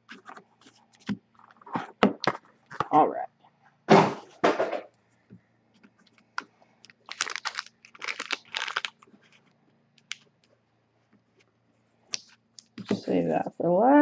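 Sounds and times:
foil wrappers crinkling: 6.9s - 9.1s.

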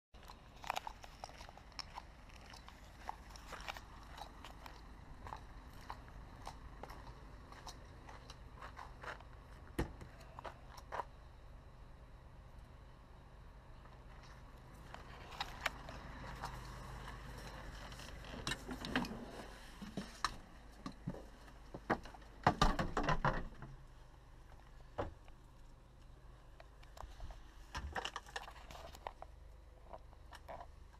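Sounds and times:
low steady rumble: 0.2s - 22.5s, 23.4s - 30.9s
steady low hum: 0.2s - 22.7s, 23.4s - 30.9s
faint footsteps crunching: 0.5s - 11.2s, 13.8s - 18.7s.

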